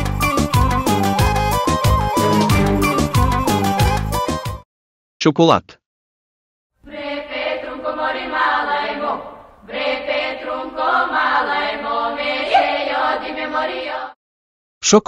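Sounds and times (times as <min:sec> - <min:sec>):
folk voices singing in harmony: 0:01.8 - 0:03.4, 0:06.8 - 0:14.2.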